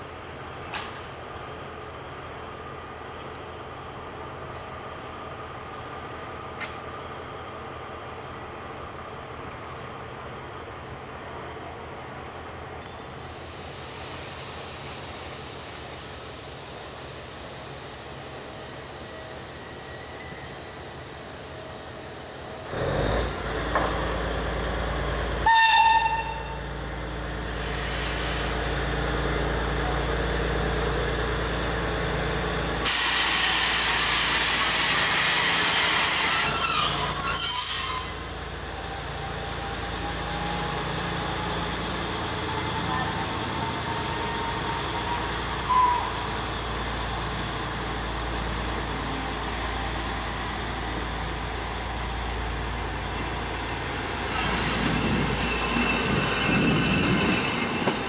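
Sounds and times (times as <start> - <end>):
train arriving with low rumble: 0.0 - 58.0
loud hiss of air: 12.9 - 21.5, 27.4 - 29.0, 32.8 - 36.4, 53.8 - 56.4
thin high squeal of brakes: 19.0 - 20.9, 34.6 - 46.7, 54.0 - 58.0
train horn note: 25.4 - 26.6.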